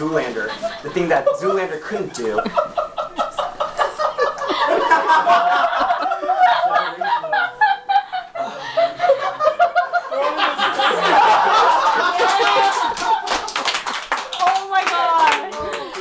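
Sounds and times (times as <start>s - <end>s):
people talking: 0.0s - 2.6s, 5.2s - 8.0s, 14.3s - 16.0s
people laughing: 0.1s - 16.0s.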